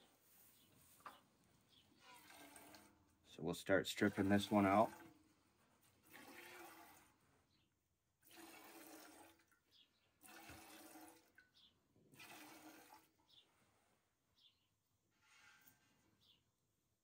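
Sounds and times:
milk hissing into metal pail: 8.2 - 9.4, 10.2 - 11.3.

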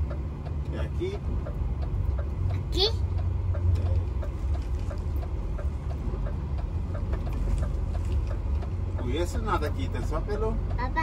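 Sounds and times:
road noise: 0.0 - 11.0
truck engine rumble: 0.0 - 11.0.

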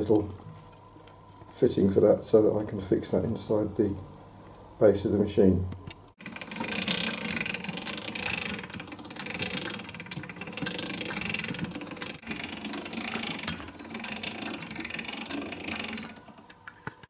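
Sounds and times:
hand-cranked drill rumbling: 6.2 - 16.6
regular gear clicks: 6.2 - 16.7.

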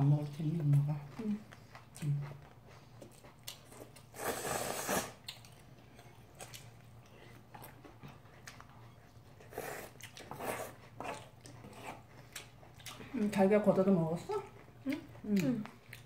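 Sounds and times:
chewing: 0.3 - 16.0
noodle slurping: 4.1 - 5.2.

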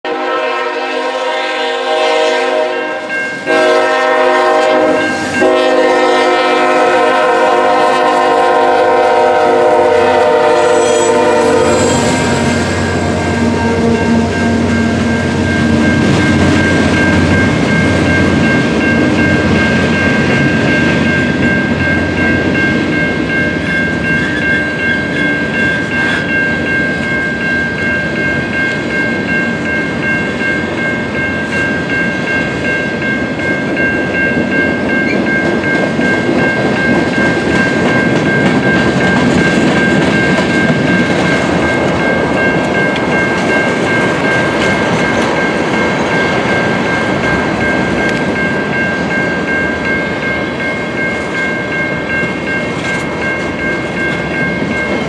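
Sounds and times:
locomotive horn blasts: 0.1 - 15.8
train wheels clacking on rails: 3.1 - 55.0
steady high tone: 4.6 - 55.0.

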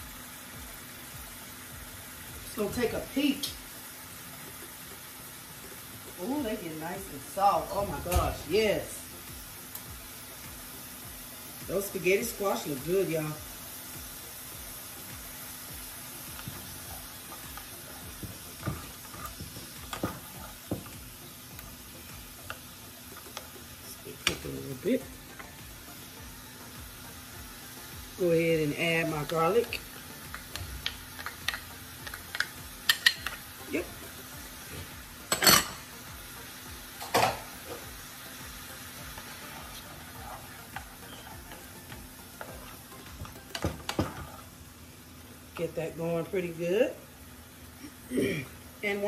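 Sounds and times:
vegetables sizzling in a frying pan: 0.0 - 49.0
spatula scraping vegetables in pan: 16.3 - 20.9, 39.1 - 42.9.

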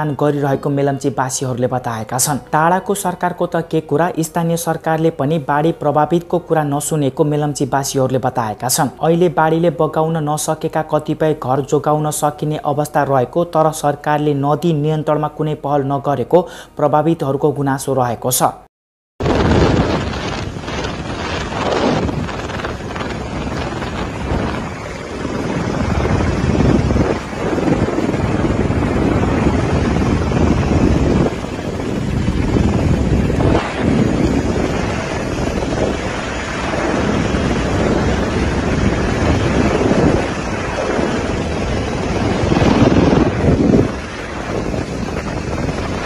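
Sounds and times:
wind on microphone: 19.2 - 46.0
helicopter engine and rotor: 20.3 - 46.0.

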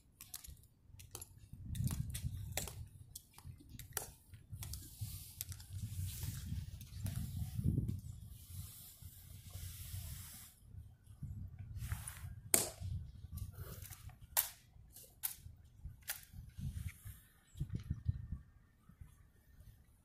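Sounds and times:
hiss: 8.3 - 10.6.

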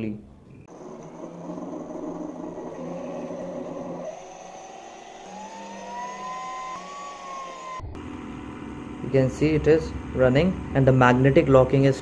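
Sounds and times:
electric motor whine: 0.7 - 9.1.

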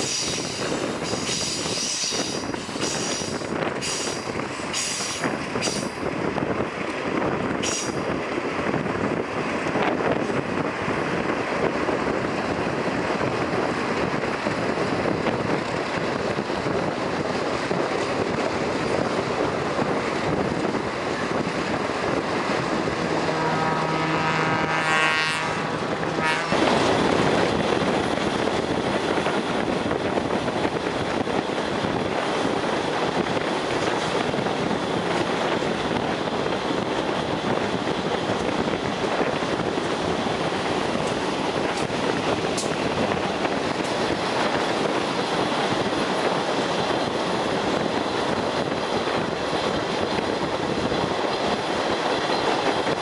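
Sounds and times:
train rolling on track: 0.0 - 53.0
train horn: 22.6 - 27.3.

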